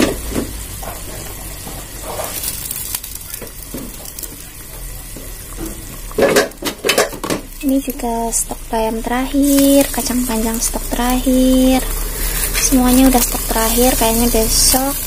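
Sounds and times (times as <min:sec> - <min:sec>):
soup boiling in a pot: 0:00.0 - 0:15.0
small ticks and pops: 0:02.4 - 0:08.0.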